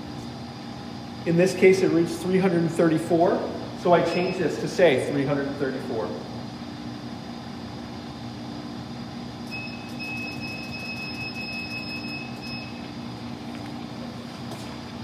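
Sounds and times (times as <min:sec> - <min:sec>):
machine running hum: 0:00.0 - 0:15.0
high steady electronic beep: 0:04.1 - 0:04.5, 0:09.5 - 0:12.9.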